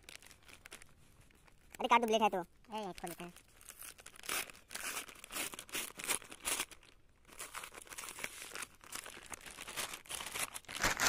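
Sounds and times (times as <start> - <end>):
paper envelope tearing and rustling: 2.8 - 11.0.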